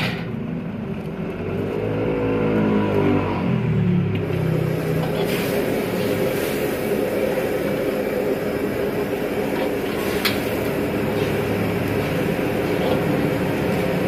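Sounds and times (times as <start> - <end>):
gas burner roaring: 0.0 - 14.0
brush scrubbing water in wok: 4.7 - 7.6, 9.1 - 14.0.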